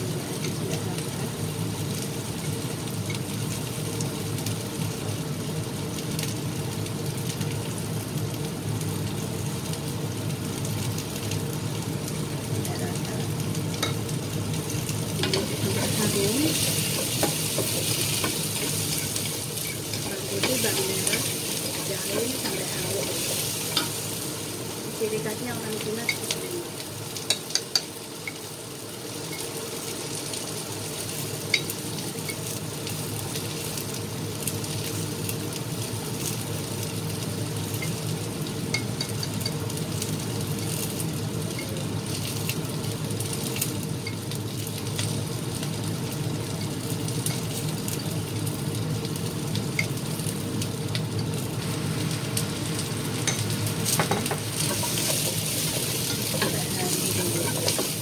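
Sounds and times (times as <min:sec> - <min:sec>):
garlic sizzling in oil: 0:00.0 - 0:58.0
spatula stirring a pan: 0:14.7 - 0:24.4, 0:26.0 - 0:28.5, 0:53.2 - 0:58.0.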